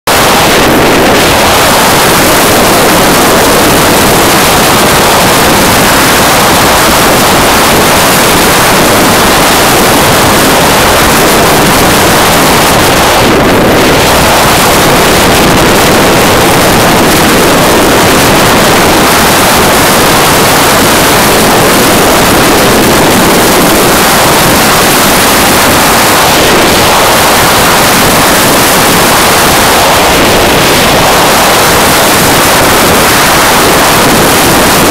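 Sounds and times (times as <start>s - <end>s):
wind rush over microphone: 0.0s - 34.9s.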